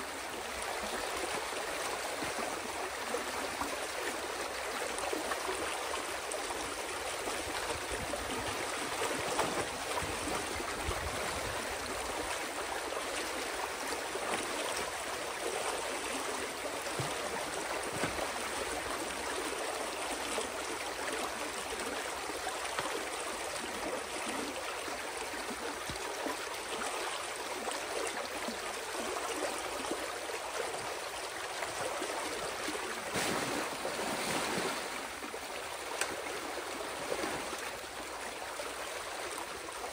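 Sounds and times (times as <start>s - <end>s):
water splash: 33.0s - 35.2s.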